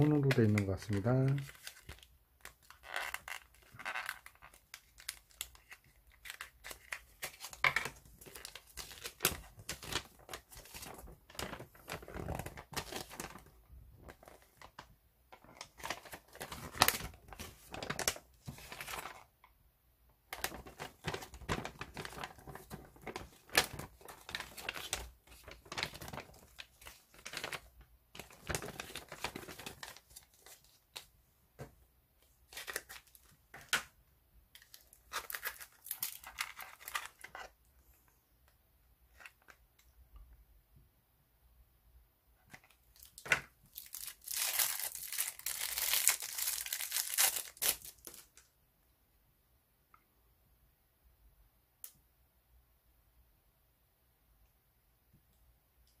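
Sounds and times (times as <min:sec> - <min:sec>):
paper leaflet rustling and crinkling: 0:00.0 - 0:19.3, 0:20.4 - 0:31.7, 0:34.6 - 0:37.6, 0:42.5 - 0:48.4.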